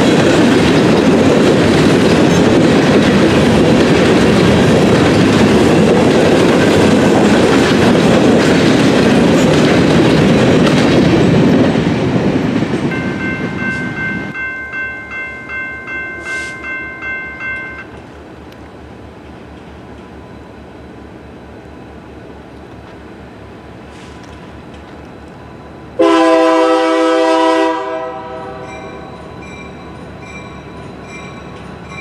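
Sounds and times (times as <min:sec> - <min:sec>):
clickety-clack of train wheels: 0:00.0 - 0:14.4, 0:15.0 - 0:20.2, 0:22.5 - 0:23.2, 0:23.9 - 0:25.4, 0:26.0 - 0:32.0
freight train rumbling past: 0:00.0 - 0:32.0
grade-crossing bell ringing: 0:12.8 - 0:18.0, 0:28.3 - 0:32.0.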